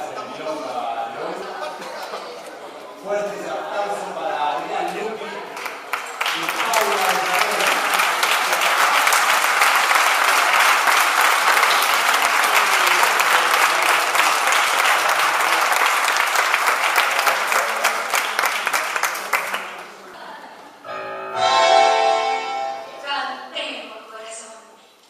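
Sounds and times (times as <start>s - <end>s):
audience applauding: 5.4s - 20.2s.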